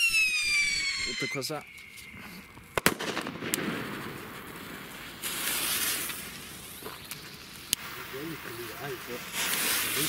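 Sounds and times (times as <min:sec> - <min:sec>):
lighter hissing and fizzing: 0:04.9 - 0:10.0.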